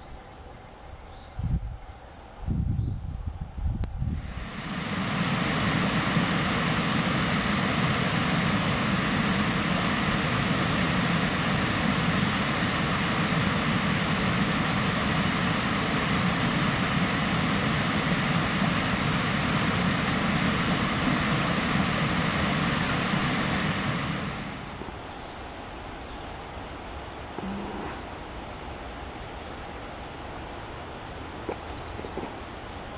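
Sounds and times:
stream water rushing over rock: 4.2 - 25.0.

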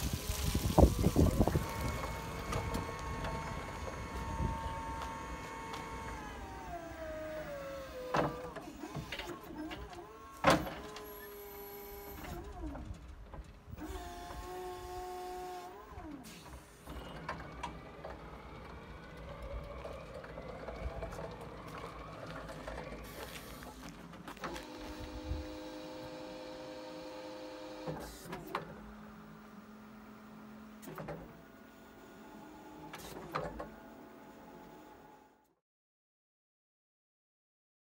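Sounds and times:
forklift electric motor whining: 0.0 - 13.0, 13.7 - 35.4.

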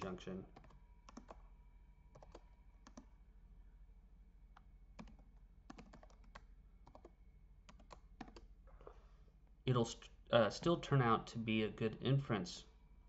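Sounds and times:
keyboard keystrokes: 0.6 - 1.4, 2.1 - 3.1, 4.6 - 7.1, 7.7 - 8.5.

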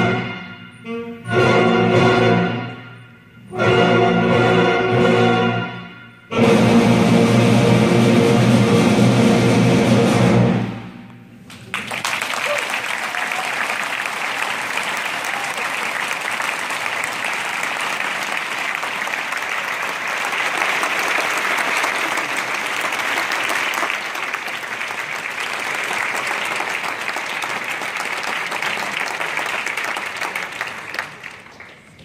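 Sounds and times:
audience applauding: 11.5 - 32.0.

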